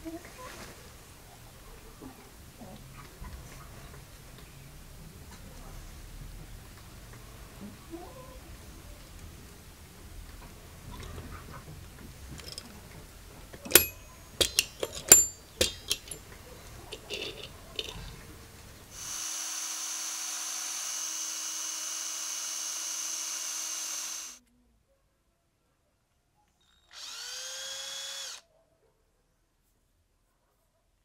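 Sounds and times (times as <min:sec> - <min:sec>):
metal tool clicking on brass: 0:13.6 - 0:16.2, 0:16.8 - 0:18.1
small electric drill whining: 0:18.9 - 0:24.4, 0:26.8 - 0:28.4.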